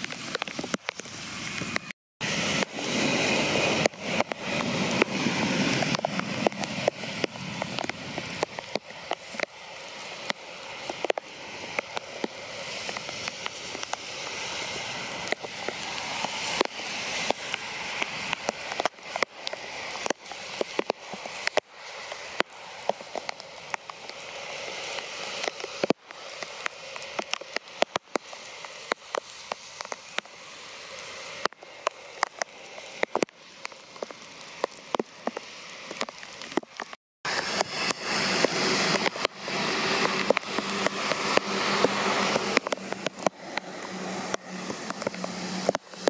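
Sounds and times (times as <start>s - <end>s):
heavy rain hiss: 0.0s - 46.0s
raindrops ticking near microphone: 0.0s - 46.0s.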